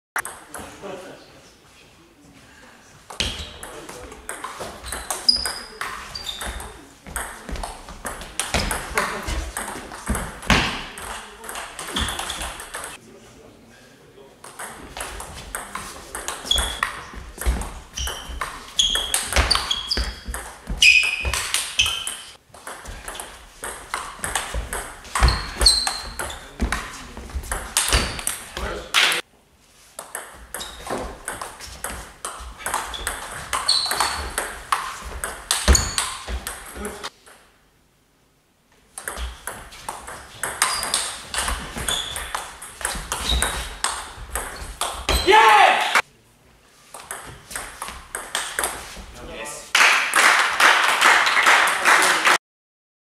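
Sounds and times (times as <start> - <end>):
table tennis ball hits: 0.2 - 0.7, 3.1 - 13.0, 14.4 - 29.2, 30.0 - 37.4, 39.0 - 46.0, 47.0 - 49.0
shoe squeaks: 4.8 - 6.8, 11.9 - 12.6, 16.4 - 17.2, 17.9 - 22.4, 25.2 - 26.6, 30.5 - 31.0, 32.7 - 34.4, 35.6 - 36.3, 40.5 - 43.9, 44.5 - 45.4.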